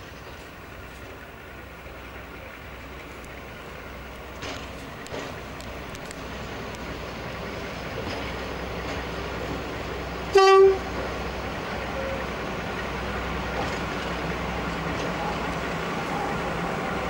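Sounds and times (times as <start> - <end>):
locomotive rumbling: 0.0 - 17.0
locomotive horn: 10.3 - 11.0.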